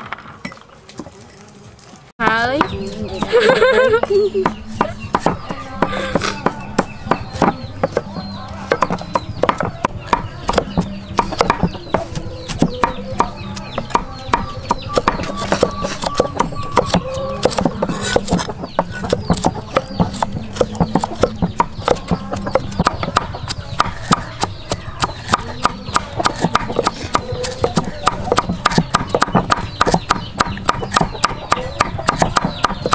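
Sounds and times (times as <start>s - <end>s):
chickens clucking: 2.3s - 32.9s
cleavers chopping on wooden blocks: 2.5s - 32.9s.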